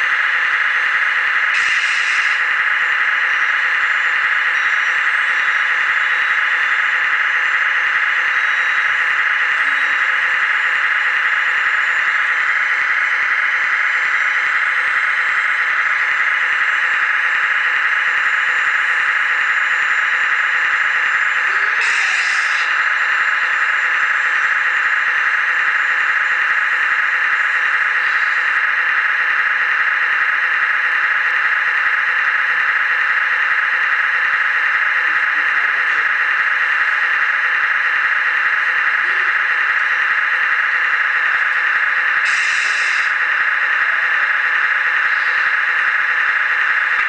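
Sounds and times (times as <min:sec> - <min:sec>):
small electric motor whining: 0:20.2 - 0:26.5.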